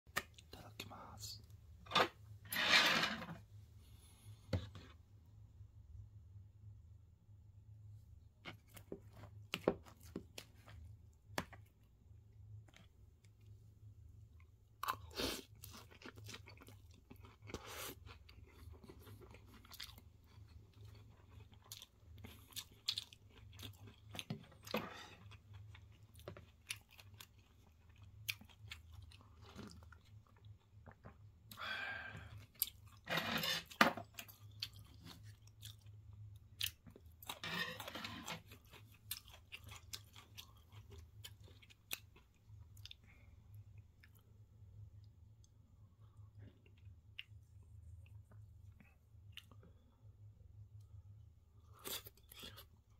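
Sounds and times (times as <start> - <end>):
chewing crispy food: 14.3 - 50.0, 51.6 - 52.9.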